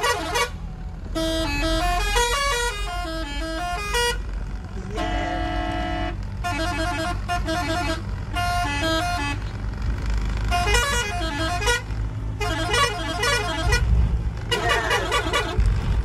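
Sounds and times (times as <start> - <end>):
air horn playing a tune: 0.0 - 4.2, 4.9 - 9.5, 10.5 - 11.8, 12.4 - 13.9
vehicle engine and road rumble: 0.0 - 16.0.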